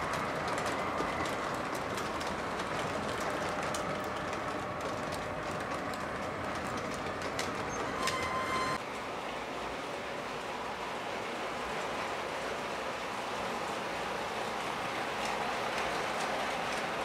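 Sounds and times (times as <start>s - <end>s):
clicks over rail joints: 0.0s - 8.7s, 15.0s - 17.0s
model train wheels rumbling: 0.0s - 17.0s.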